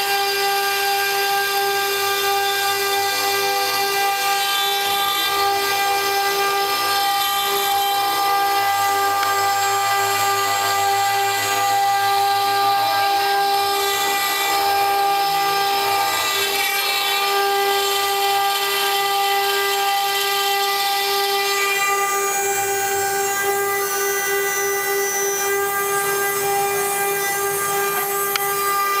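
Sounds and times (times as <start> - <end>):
stone router whining: 0.0 - 29.0.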